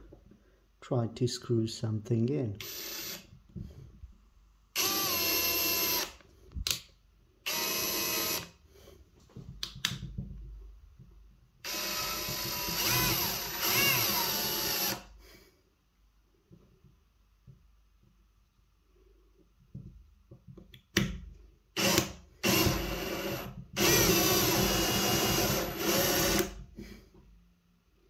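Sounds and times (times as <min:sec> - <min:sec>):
cordless drill motor whine: 0:02.6 - 0:03.3, 0:04.8 - 0:06.2, 0:07.5 - 0:08.5, 0:11.7 - 0:15.1, 0:21.8 - 0:26.5.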